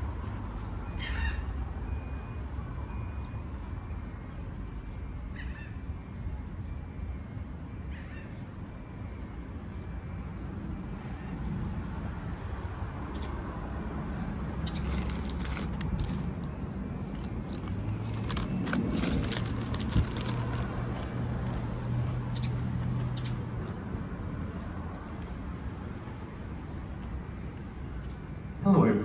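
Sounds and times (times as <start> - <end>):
traffic rumble: 0.0 - 29.0
crinkly clicks and rustles: 14.7 - 25.6.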